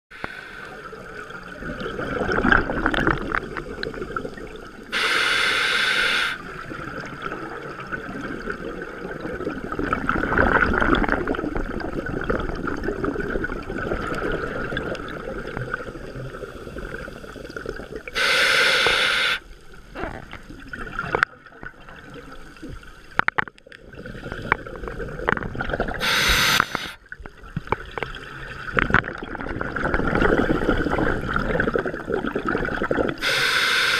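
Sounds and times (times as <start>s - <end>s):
regulator hissing inhalations: 0.1s - 1.0s, 4.9s - 6.4s, 18.2s - 19.5s, 26.0s - 27.0s, 33.2s - 33.9s
exhaled air bubbling: 0.1s - 22.8s, 23.7s - 33.9s.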